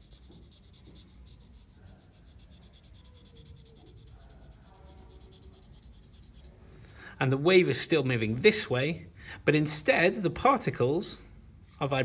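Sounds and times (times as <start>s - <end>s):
marker scratching on paper: 0.0s - 6.5s.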